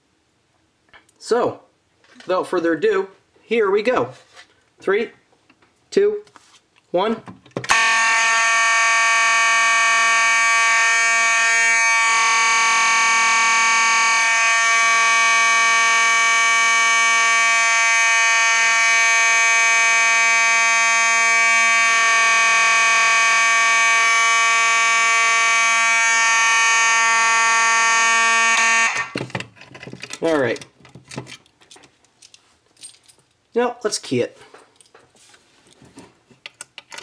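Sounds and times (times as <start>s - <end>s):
fire alarm horn: 7.7s - 29.2s.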